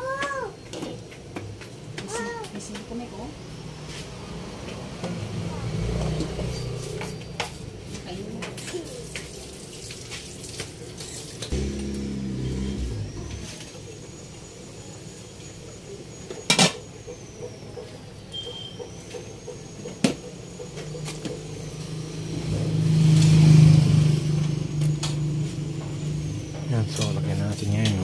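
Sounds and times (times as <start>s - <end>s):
low steady hum: 11.5s - 13.8s.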